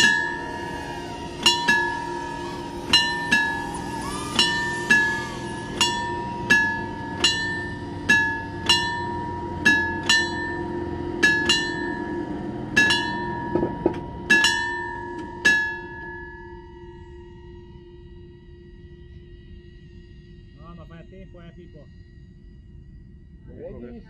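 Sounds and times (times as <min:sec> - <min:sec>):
steady low hum: 0:00.0 - 0:24.0
bell-like chime strikes: 0:04.4 - 0:17.9.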